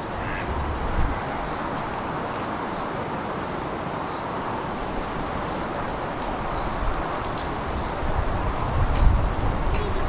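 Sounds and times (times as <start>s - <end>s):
faint bird calls: 0.0s - 1.8s
wind noise on microphone: 0.0s - 10.0s.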